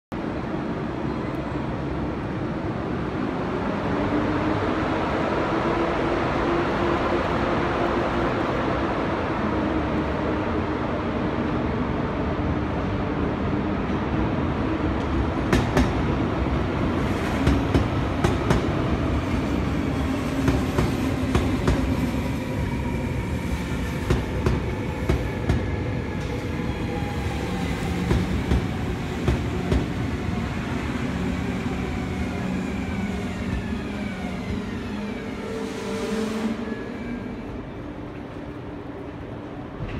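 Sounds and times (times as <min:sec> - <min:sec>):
train rumble: 0:00.2 - 0:39.9
electric train whine: 0:16.1 - 0:39.9.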